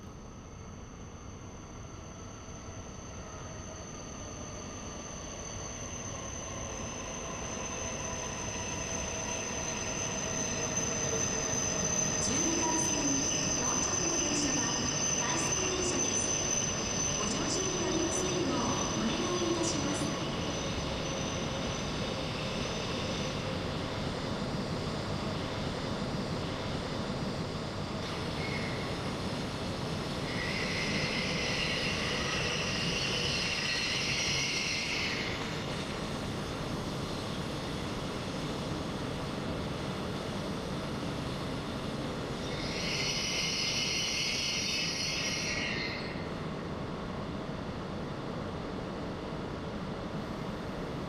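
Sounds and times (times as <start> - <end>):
high-pitched hiss: 2.2 - 23.4, 28.0 - 39.0, 40.2 - 46.3.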